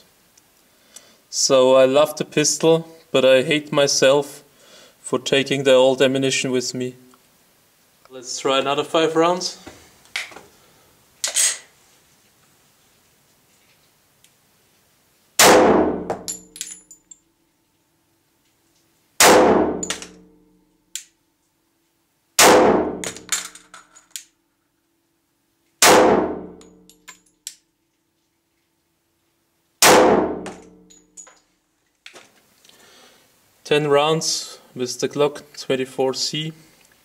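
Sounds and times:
pistol shots ringing: 15.4 - 16.5, 19.2 - 20.2, 22.4 - 23.4, 25.8 - 26.6, 29.8 - 30.8.

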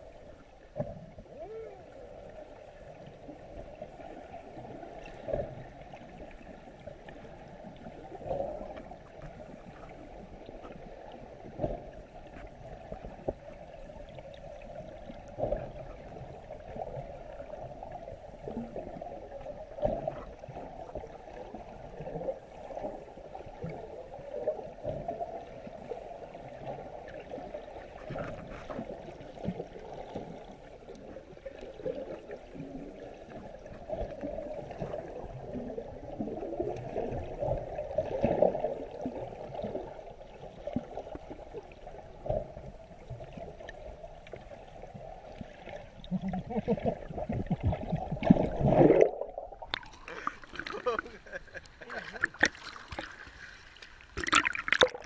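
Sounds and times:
muffled underwater noise: 0.0 - 6.4, 45.9 - 52.5.

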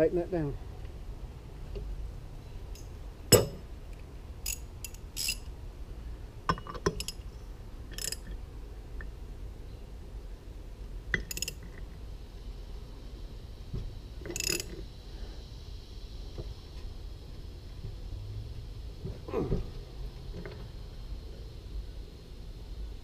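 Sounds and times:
ratchet wrench clinking on metal: 4.4 - 5.5, 6.5 - 7.3, 7.9 - 8.4, 11.1 - 11.8, 14.2 - 14.8.

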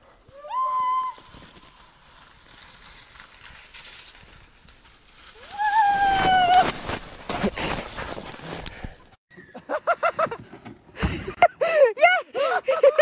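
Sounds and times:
sled rushing over snow: 0.2 - 9.0.

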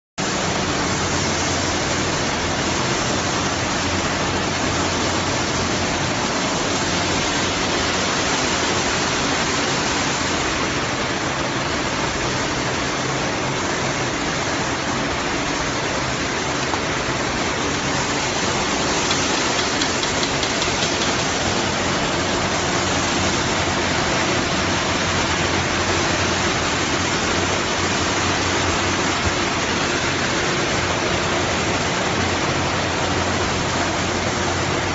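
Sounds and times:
production line hissing: 0.2 - 34.9.

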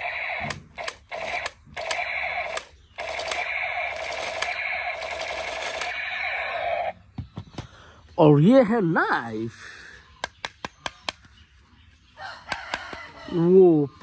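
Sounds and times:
toy machine gun rattling: 0.0 - 6.6.

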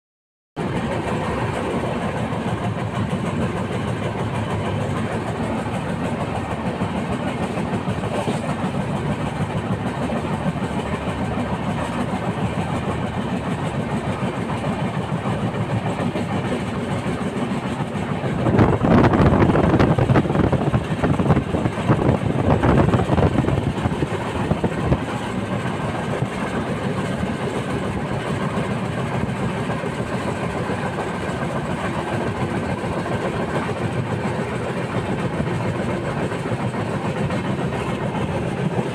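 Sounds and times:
train wheels clattering on track: 0.6 - 38.9.

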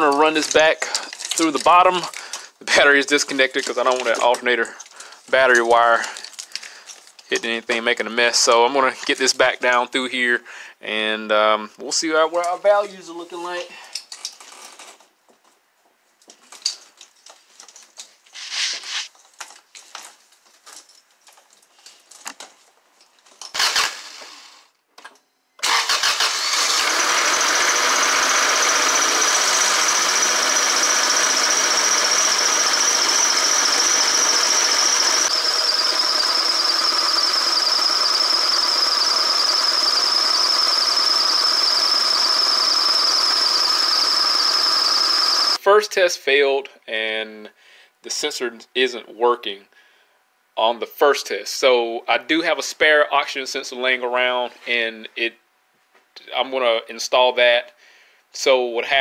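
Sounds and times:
plastic wiring loom clicks and rustles: 0.0 - 2.2, 3.1 - 7.6
car engine idling: 26.2 - 45.6
high-pitched whine: 26.8 - 45.6.

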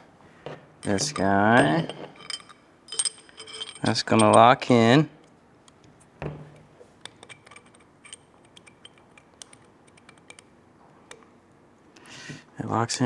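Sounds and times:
metal parts clicking and tapping: 0.5 - 4.6, 6.5 - 11.3.

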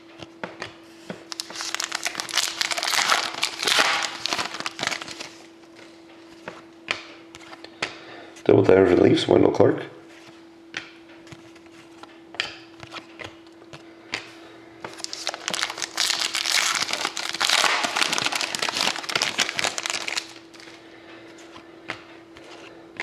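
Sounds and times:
foil pack tearing and crinkling: 1.3 - 5.4, 14.9 - 20.8.

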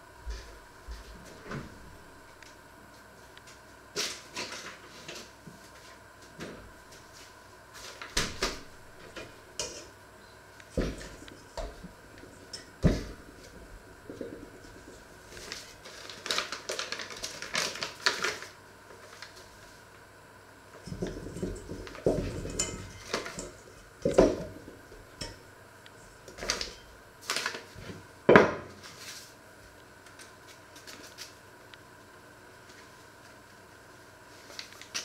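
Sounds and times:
paper flour bag rustling: 14.2 - 19.9.

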